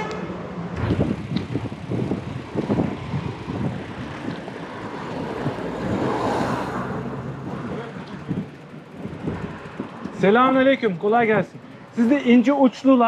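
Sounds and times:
wind buffeting microphone: 0.7s - 10.4s.

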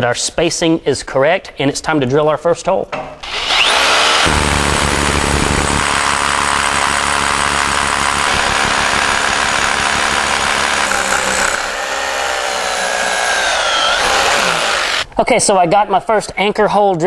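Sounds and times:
hammer drill boring into concrete: 3.2s - 15.0s.

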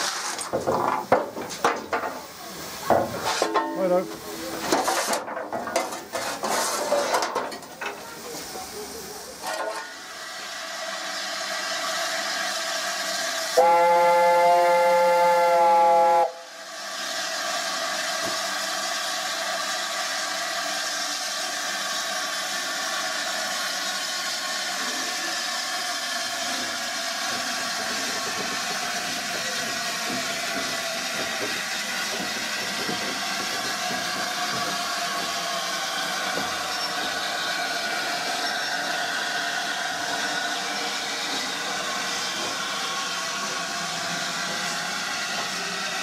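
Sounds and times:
steam hissing: 0.0s - 46.0s
steam locomotive chime whistle: 13.5s - 16.5s.

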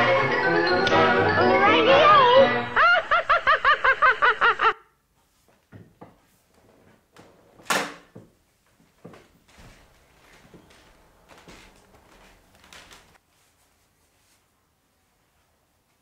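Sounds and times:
cartoon music: 0.0s - 2.8s
high cartoon laugh: 2.7s - 4.8s.

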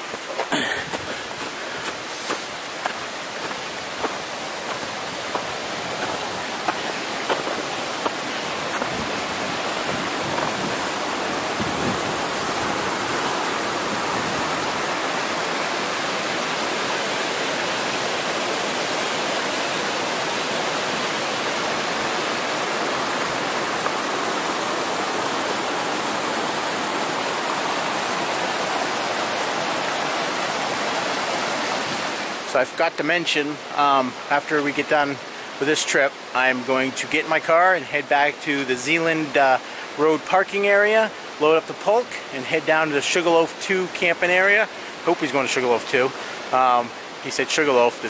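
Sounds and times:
mountain brook rushing: 0.0s - 48.0s.

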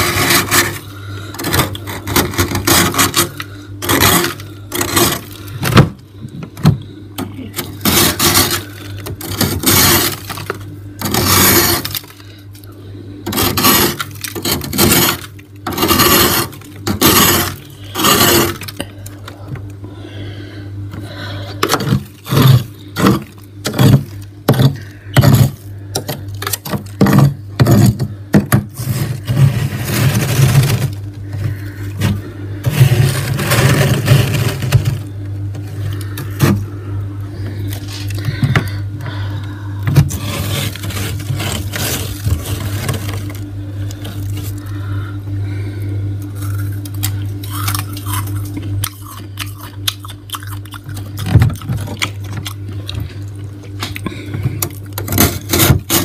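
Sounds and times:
metal spoon scraping frost: 0.0s - 5.6s, 7.5s - 12.1s, 13.3s - 18.8s, 28.8s - 36.6s, 40.0s - 43.4s
steady low hum: 0.0s - 56.0s.

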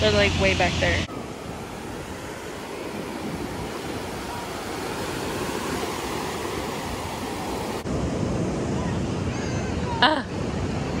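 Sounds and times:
ocean surf rushing: 0.0s - 11.0s
wind on microphone: 0.0s - 11.0s.

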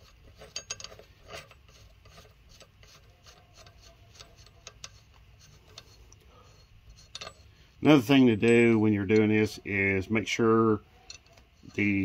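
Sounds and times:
nut scraping on threads: 0.0s - 12.0s
small metallic clicks: 7.0s - 7.5s, 11.0s - 11.9s.

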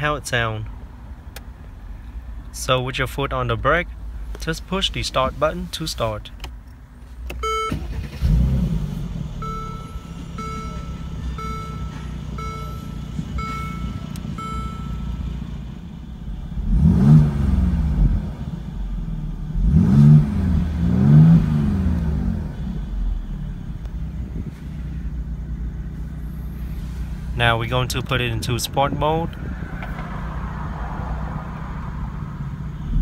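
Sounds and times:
car engine starting and idling: 0.0s - 33.0s
engine revving: 7.5s - 15.3s, 16.3s - 23.2s
short chime beeps: 9.4s - 15.2s.

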